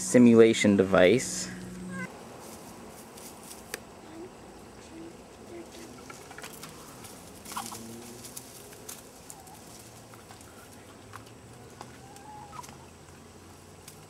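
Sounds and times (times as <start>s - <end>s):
hens clucking softly: 5.8s - 13.3s.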